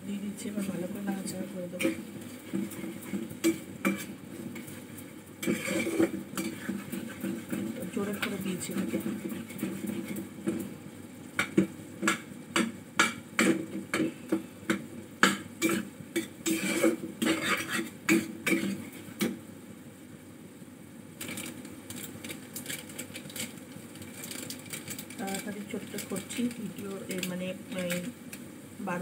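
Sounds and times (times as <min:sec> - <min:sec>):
metal spatula scraping a pan: 0:01.8 - 0:10.6, 0:15.2 - 0:19.0.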